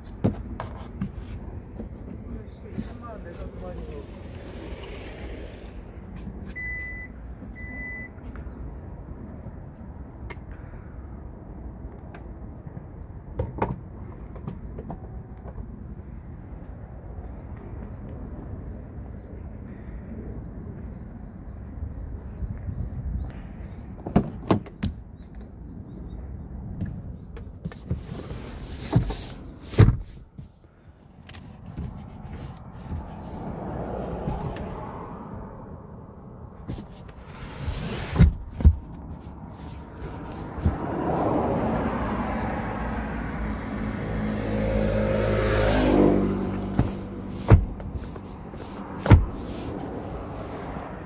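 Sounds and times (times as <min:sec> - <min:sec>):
car door thumping shut: 0:29.8 - 0:30.2, 0:46.7 - 0:47.9, 0:49.0 - 0:49.4.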